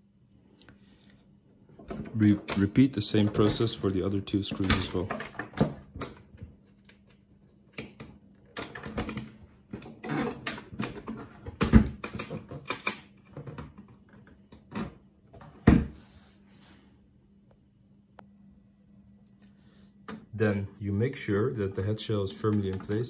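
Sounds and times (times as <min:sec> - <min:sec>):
clicks and knocks of small parts: 0:04.5 - 0:14.8.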